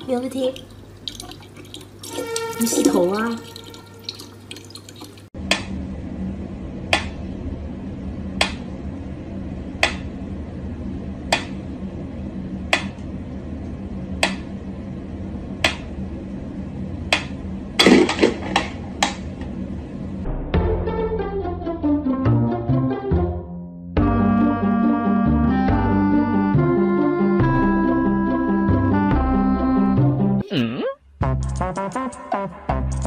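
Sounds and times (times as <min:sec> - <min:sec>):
low hum: 0:05.4 - 0:21.0.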